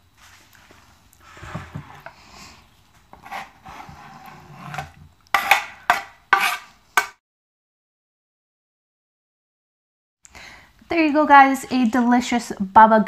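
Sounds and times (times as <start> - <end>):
knife scraping cutting board: 1.2 - 2.3, 3.1 - 7.2.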